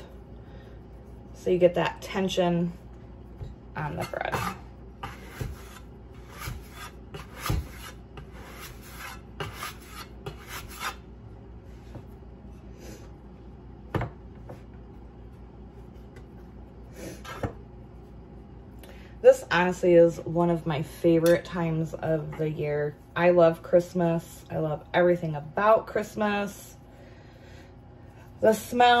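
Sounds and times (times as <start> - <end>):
bench scraper scraping wooden board: 3.8 - 11.0.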